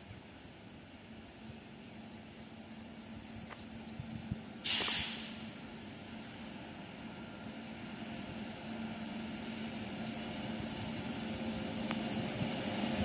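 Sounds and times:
distant locomotive hum: 0.0s - 13.0s
short sharp hiss: 4.6s - 5.6s.

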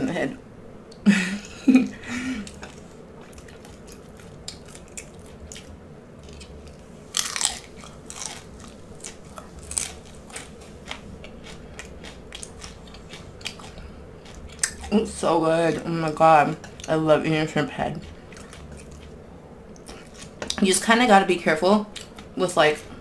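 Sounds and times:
voice: 0.0s - 0.4s, 14.8s - 18.1s, 20.5s - 22.9s
crunching and chewing: 2.4s - 17.0s, 17.6s - 20.6s, 21.8s - 23.0s.

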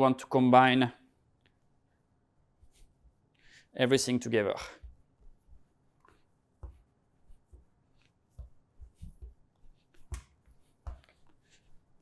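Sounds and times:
hands thumping and rubbing dough: 4.8s - 12.0s.

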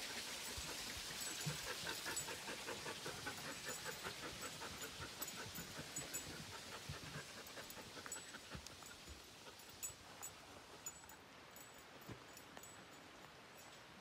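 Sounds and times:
dog panting: 0.1s - 11.2s.

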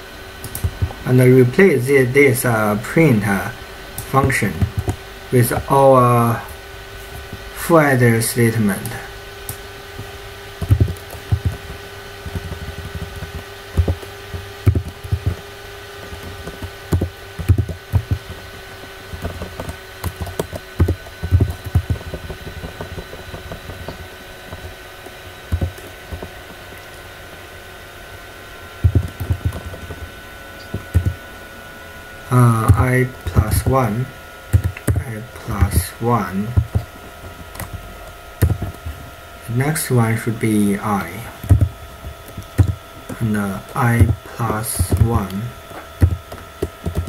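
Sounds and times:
faint electrical hum: 0.0s - 47.0s
computer keyboard typing: 4.0s - 5.0s, 10.6s - 18.4s, 19.1s - 24.0s, 25.5s - 26.3s, 28.8s - 30.0s, 30.6s - 31.2s, 32.3s - 36.9s, 38.4s - 38.8s, 41.4s - 47.0s.

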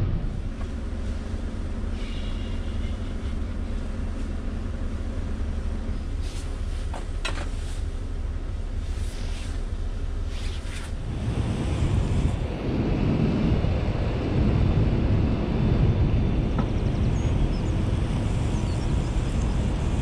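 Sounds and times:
diesel engine idling: 0.0s - 9.0s.

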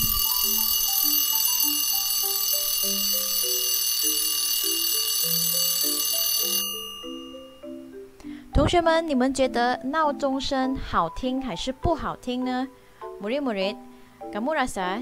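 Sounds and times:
alarm clock bell ringing: 0.0s - 7.8s.

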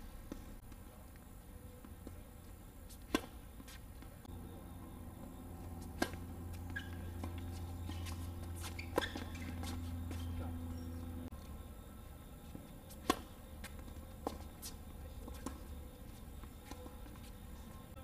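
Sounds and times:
low steady hum: 0.0s - 18.0s
tennis racket hitting ball: 3.0s - 3.8s, 5.8s - 10.8s, 12.9s - 15.6s.

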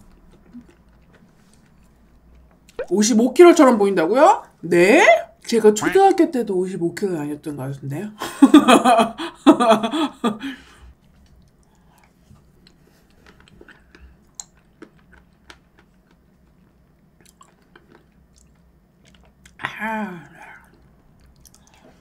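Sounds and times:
quiet chewing: 0.0s - 2.9s, 10.7s - 19.6s, 20.2s - 22.0s
person laughing: 8.2s - 10.7s.

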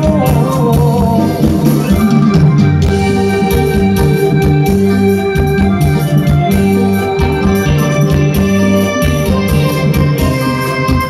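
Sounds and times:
electronic organ chords: 0.0s - 11.0s
steady drum beat: 0.0s - 11.0s.

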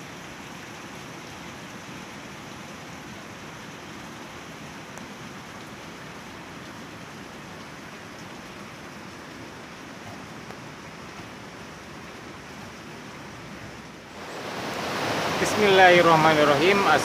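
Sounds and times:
fast-flowing river rushing: 10.8s - 17.0s.

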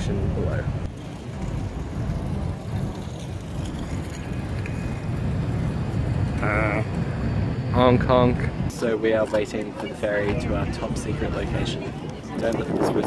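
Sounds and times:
low background rumble: 0.0s - 8.8s.

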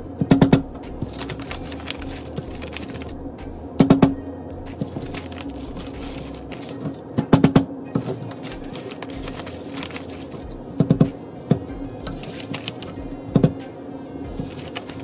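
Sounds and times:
newspaper rustling: 1.0s - 3.2s, 4.8s - 7.2s, 8.0s - 11.1s, 12.0s - 13.6s, 14.4s - 15.0s.

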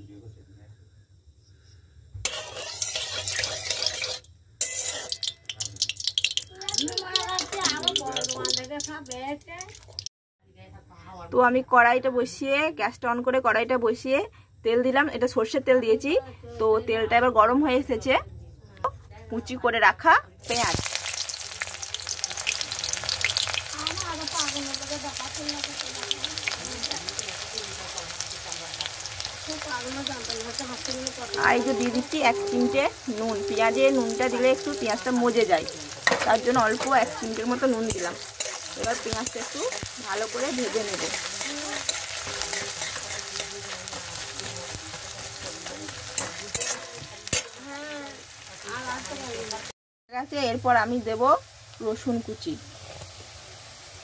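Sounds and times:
onion sizzling in hot oil: 2.0s - 10.1s, 20.4s - 54.0s
spatula clinking against pan: 2.3s - 8.6s, 41.0s - 47.6s.

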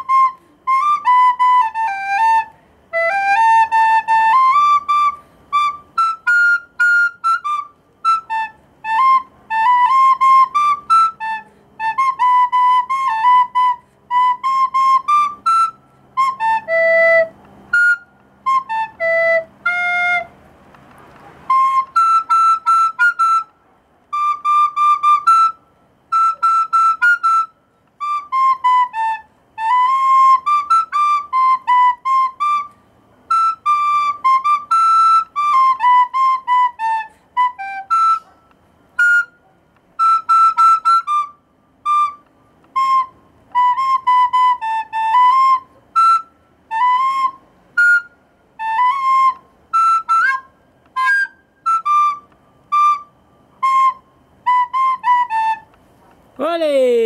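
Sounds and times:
recorder melody: 0.0s - 38.4s.

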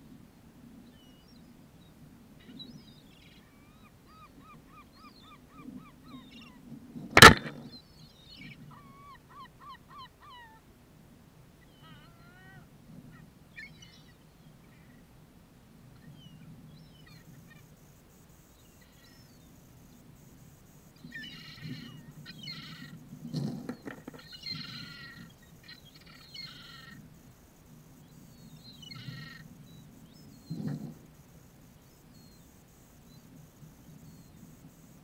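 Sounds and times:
sudden thump: 7.2s - 7.6s
gulls calling: 7.2s - 7.7s.

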